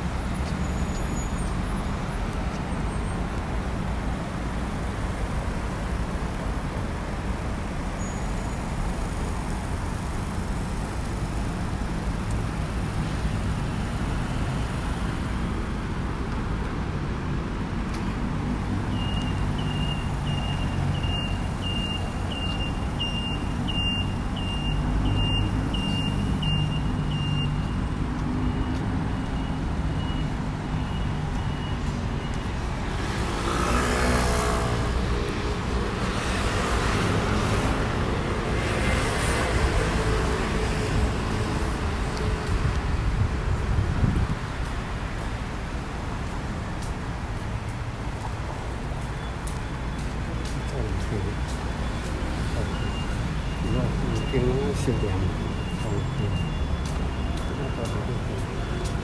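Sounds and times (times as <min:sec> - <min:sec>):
traffic rumble: 0:00.0 - 0:59.0
high electronic beep: 0:51.8 - 0:59.0.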